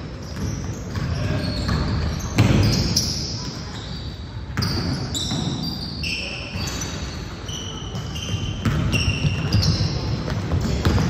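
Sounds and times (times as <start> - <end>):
low court noise: 0.0 - 11.0
sneakers squeaking on floor: 0.0 - 11.0
basketball bouncing: 0.3 - 2.9, 8.0 - 11.0.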